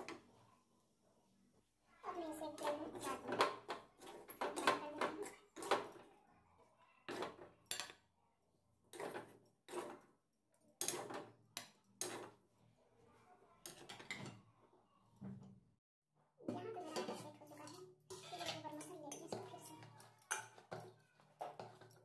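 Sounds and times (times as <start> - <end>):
metal spatula scraping a pan: 8.9 - 10.2, 10.8 - 12.5, 16.8 - 22.0.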